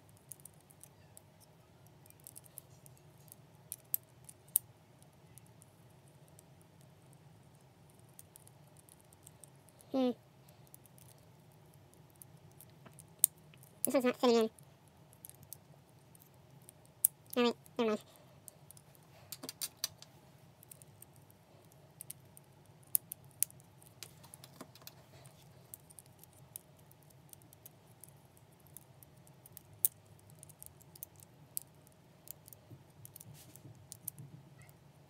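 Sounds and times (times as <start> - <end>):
faint low hum: 0.0 - 35.0
plastic puzzle pieces clicking: 19.3 - 21.2, 22.9 - 25.0.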